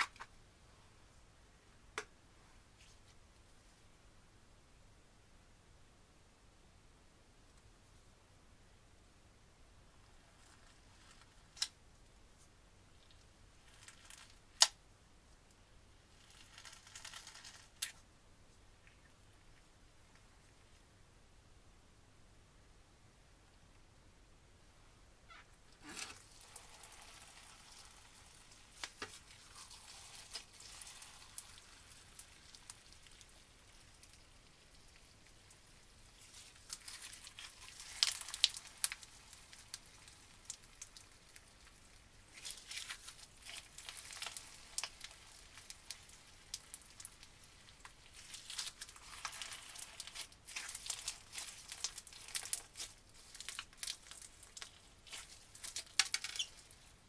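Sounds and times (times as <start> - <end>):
crunchy slime crackling and popping: 13.0 - 14.8, 16.1 - 18.0, 25.8 - 57.0.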